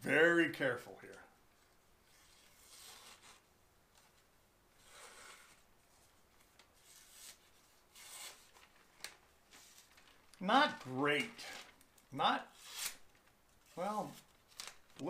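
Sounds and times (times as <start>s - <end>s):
knife slicing paper: 6.8s - 8.6s, 12.5s - 13.0s.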